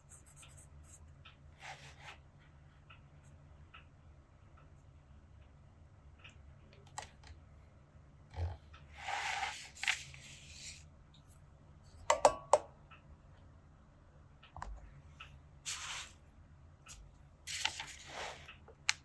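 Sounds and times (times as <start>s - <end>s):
pen nib scratching on paper: 0.0s - 2.2s.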